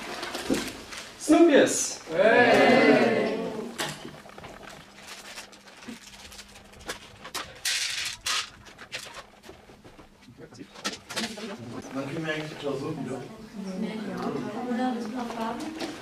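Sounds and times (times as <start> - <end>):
voices calling out: 2.1 - 3.8
plastic packet crinkling: 4.2 - 9.7
sweets rattling onto plastic plates: 4.9 - 9.4.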